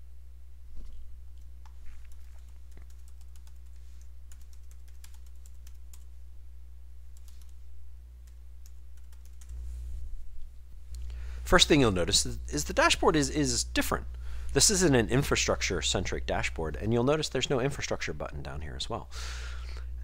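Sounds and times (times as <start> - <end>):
low electrical hum: 0.0 - 20.0
computer keyboard typing: 1.6 - 6.1, 8.2 - 9.6.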